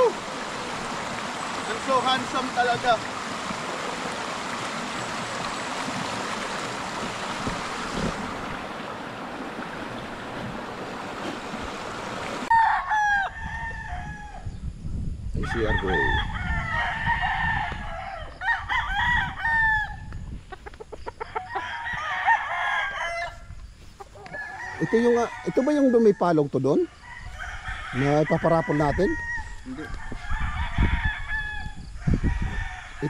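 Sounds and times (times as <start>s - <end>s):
roosters crowing: 12.4s - 14.6s, 15.4s - 33.0s.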